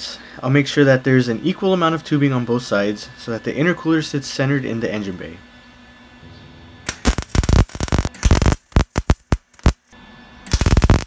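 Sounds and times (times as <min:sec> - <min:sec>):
welding arc crackle: 0:06.8 - 0:11.0.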